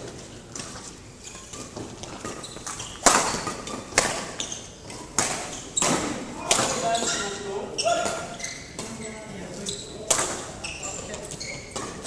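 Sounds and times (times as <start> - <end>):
rackets hitting shuttlecock: 1.4 - 7.2, 10.0 - 12.0.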